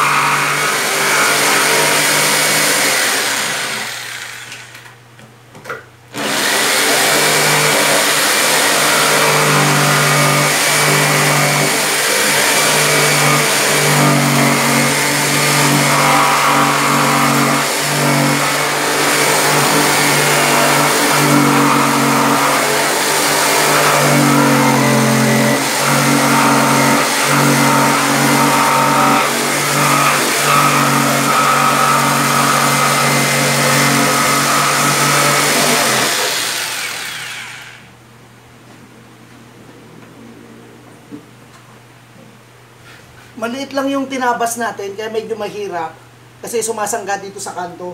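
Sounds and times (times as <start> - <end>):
jigsaw sawing wood: 0.0 - 4.8, 6.1 - 37.9.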